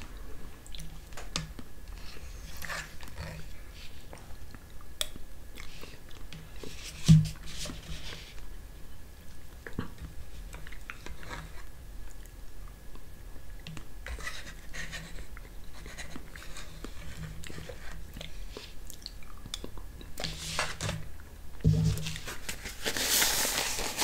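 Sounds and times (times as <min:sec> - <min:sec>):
faint steady hum: 0:00.0 - 0:24.0
quiet eating sounds: 0:00.0 - 0:24.0.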